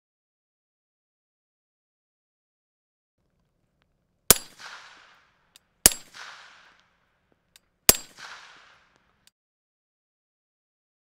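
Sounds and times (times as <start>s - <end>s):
suppressed rifle shots: 4.3s - 9.3s.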